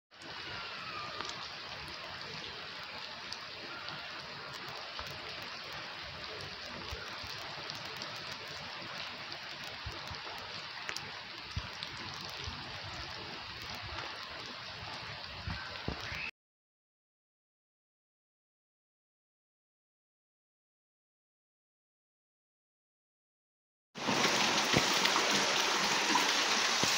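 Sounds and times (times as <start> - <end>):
heavy rain on wet concrete: 0.1 - 16.3, 24.0 - 26.9.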